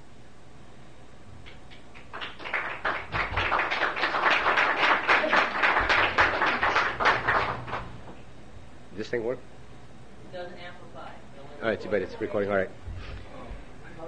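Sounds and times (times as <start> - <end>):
small audience applauding: 1.5 - 8.2.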